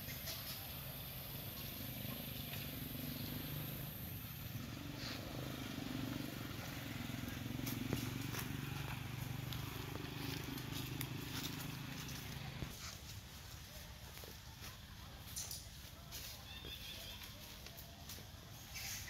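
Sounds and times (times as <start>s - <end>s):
small engine running: 0.4s - 12.7s.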